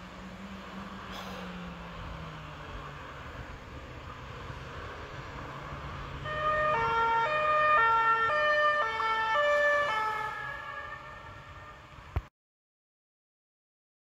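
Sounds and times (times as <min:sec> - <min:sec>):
low traffic rumble: 0:00.0 - 0:12.3
two-tone siren: 0:06.1 - 0:12.0.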